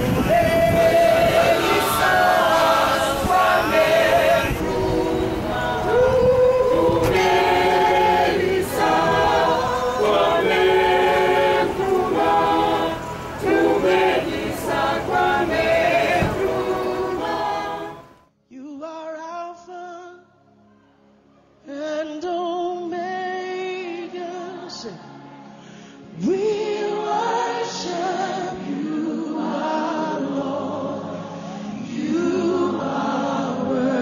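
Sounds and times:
group singing unaccompanied: 0.0s - 18.3s, 26.2s - 34.0s
thin recording of singing: 0.0s - 34.0s.

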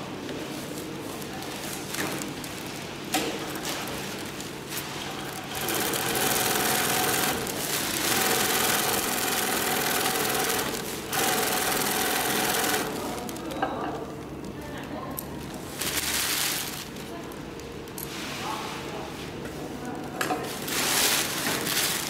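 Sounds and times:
sewing machine humming: 5.2s - 13.4s.

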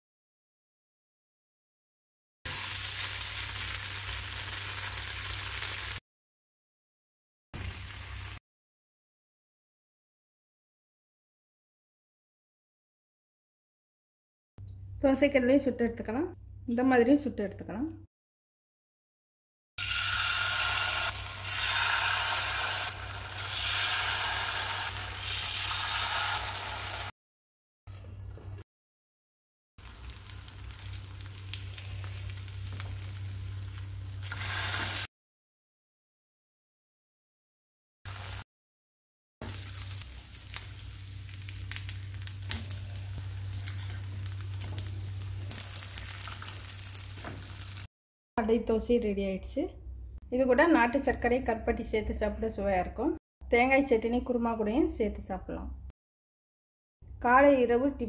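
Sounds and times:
batter sizzling in hot oil: 2.5s - 6.0s, 19.8s - 27.1s, 29.8s - 35.1s, 38.1s - 38.4s, 39.4s - 47.9s.

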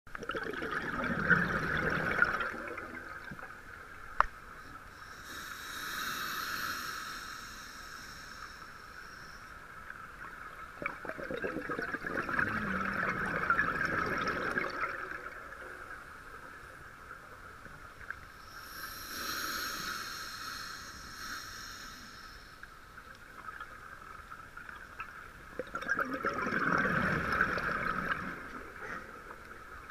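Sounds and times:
exhaled bubbles gurgling: 0.1s - 3.8s, 10.2s - 16.0s, 23.4s - 29.9s
regulator inhale hiss: 4.9s - 9.8s, 18.4s - 23.0s.

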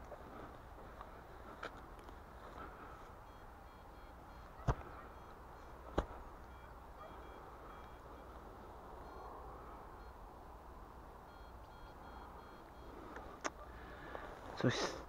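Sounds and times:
metal detector beeping: 3.1s - 10.2s, 11.2s - 13.4s.

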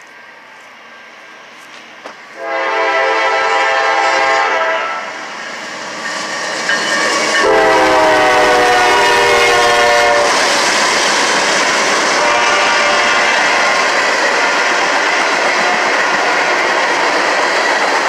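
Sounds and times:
low rumble of approaching train: 0.0s - 18.0s
train horn blasts: 2.4s - 5.2s, 7.3s - 10.5s, 12.1s - 13.8s.

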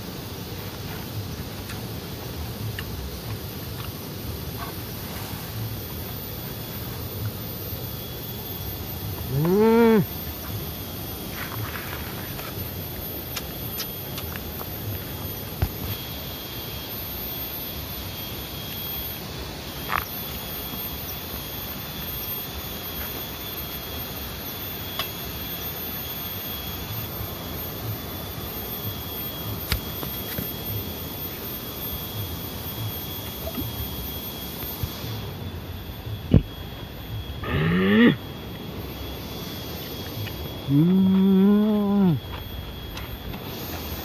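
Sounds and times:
constant hiss: 0.0s - 44.0s
high-pitched insect drone: 0.0s - 44.0s.

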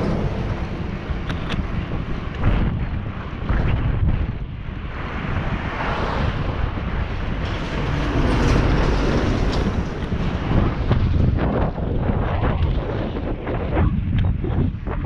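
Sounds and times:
road traffic passing: 0.0s - 13.4s
wind buffeting microphone: 0.0s - 15.0s
motor vehicle passing: 4.8s - 12.1s.

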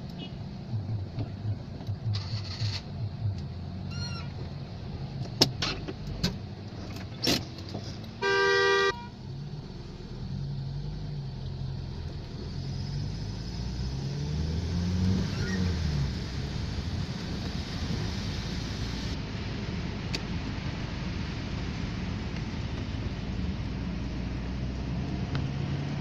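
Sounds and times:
car engine rumble: 0.0s - 26.0s
car horn blast: 8.2s - 9.1s
hiss of rain: 9.1s - 25.8s.

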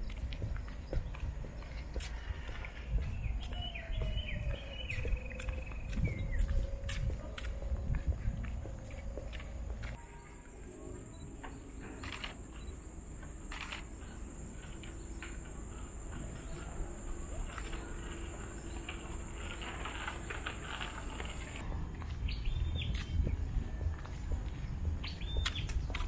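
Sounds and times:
insects droning: 0.0s - 21.6s
bird chirp: 2.8s - 6.8s, 24.6s - 26.0s.

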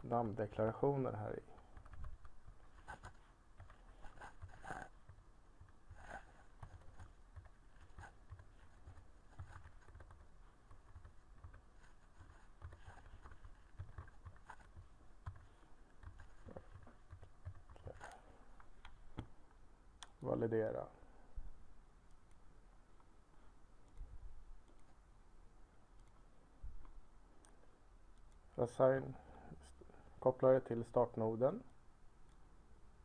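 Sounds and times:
keyboard typing: 1.5s - 19.3s.

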